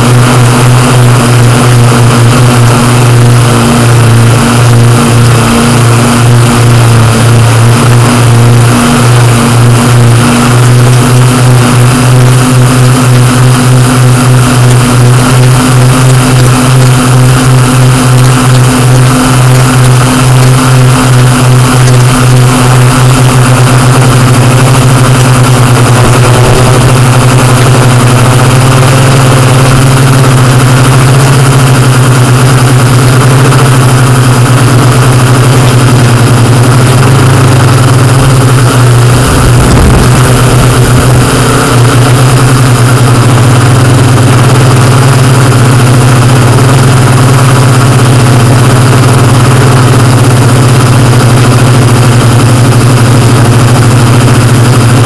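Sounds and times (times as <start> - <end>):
quadcopter motors humming: 0.0 - 55.0
low rumble: 18.2 - 46.7.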